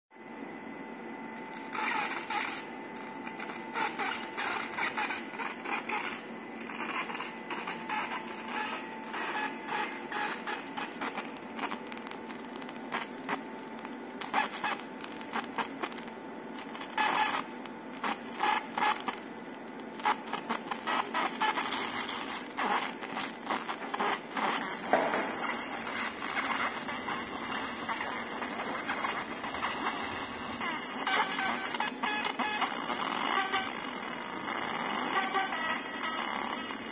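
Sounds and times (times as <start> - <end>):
laser machine hum and whine: 0.2 - 36.9
laser crackling hiss: 1.4 - 36.9.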